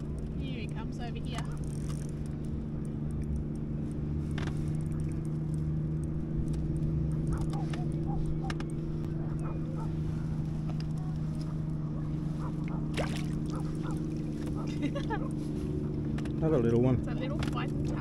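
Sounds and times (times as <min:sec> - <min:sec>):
engine running: 0:00.0 - 0:18.0.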